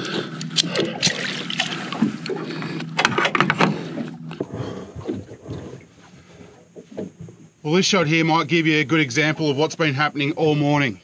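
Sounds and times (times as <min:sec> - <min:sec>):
water lapping at hull: 0:00.0 - 0:07.6.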